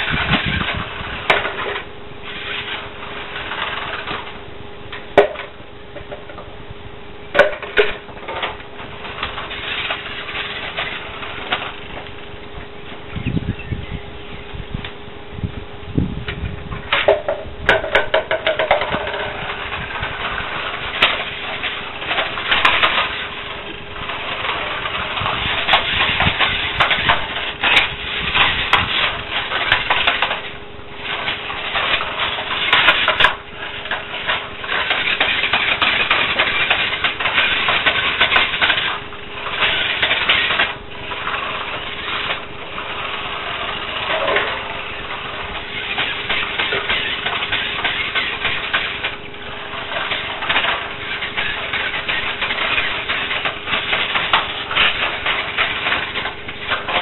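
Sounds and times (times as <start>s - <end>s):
toy car motor whirring: 18.5s - 57.0s.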